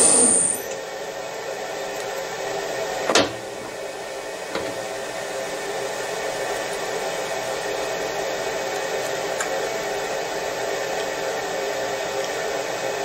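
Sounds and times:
whirring motor hum: 0.0s - 13.0s.

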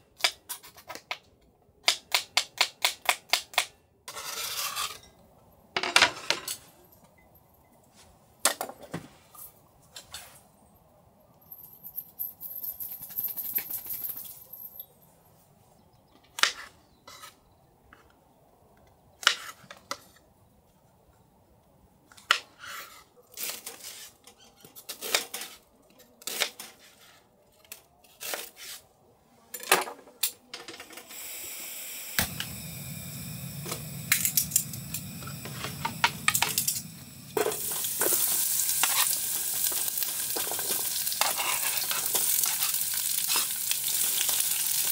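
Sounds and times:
food sizzling in a pan: 32.2s - 44.9s
utensils and dishes clinking: 33.6s - 44.9s.

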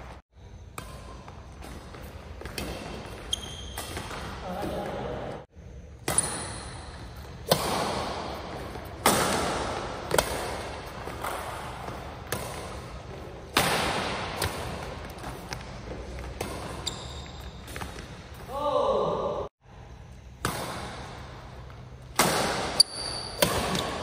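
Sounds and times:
badminton racket hitting shuttlecock: 0.7s - 5.2s, 6.0s - 18.5s, 22.0s - 24.0s.

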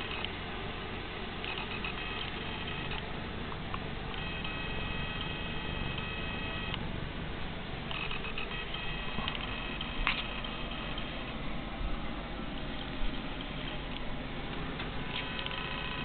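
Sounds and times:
high steady whine: 0.0s - 16.0s.

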